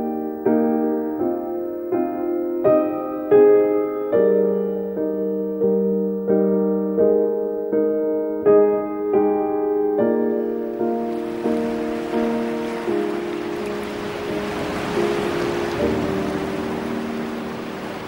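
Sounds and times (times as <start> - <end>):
soft piano chords: 0.0 - 18.0.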